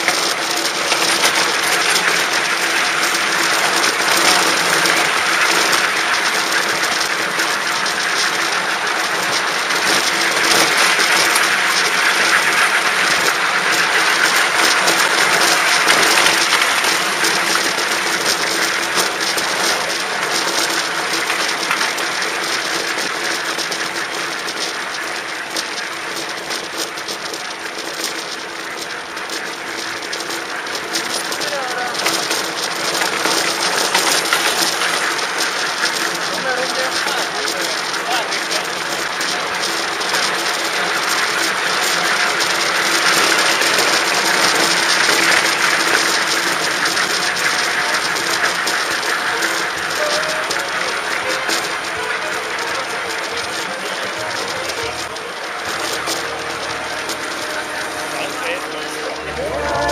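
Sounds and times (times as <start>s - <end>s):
train wheels clattering on track: 0.0s - 59.9s
steady hum: 54.0s - 59.9s.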